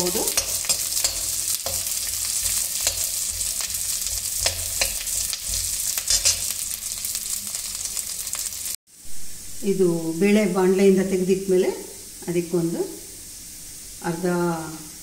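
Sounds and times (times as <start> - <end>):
garlic sizzling in hot fat: 0.0 - 15.0
ladle scraping metal pan: 0.1 - 6.7.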